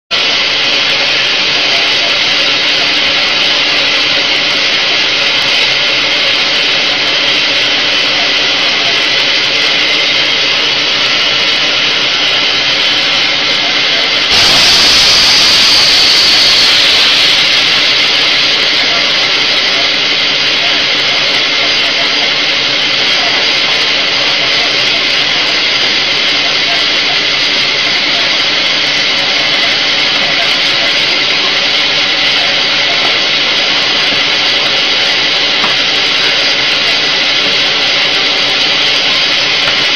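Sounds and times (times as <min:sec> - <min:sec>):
compressed air hiss: 0:14.3 - 0:20.5.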